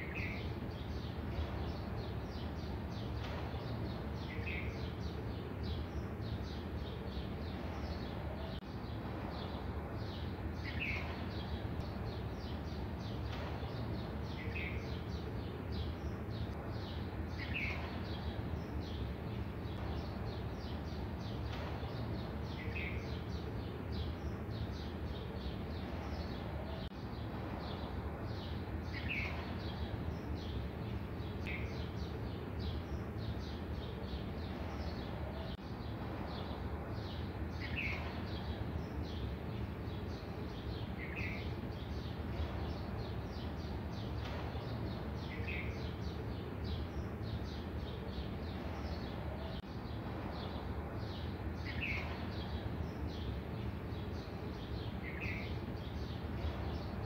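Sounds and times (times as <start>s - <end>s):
birds chirping: 0.0s - 57.0s
steady background hum: 0.0s - 57.0s.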